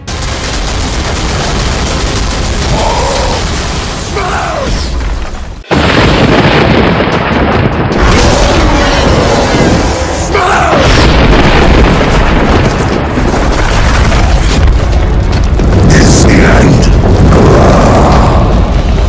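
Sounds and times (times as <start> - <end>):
explosion booms: 0.0 - 19.0.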